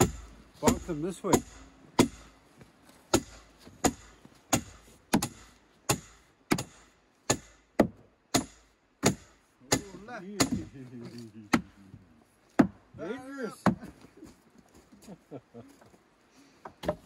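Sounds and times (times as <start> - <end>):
sledgehammer striking wood: 0.0 - 2.4, 3.1 - 10.8, 12.5 - 12.8, 13.6 - 13.9, 16.8 - 17.0.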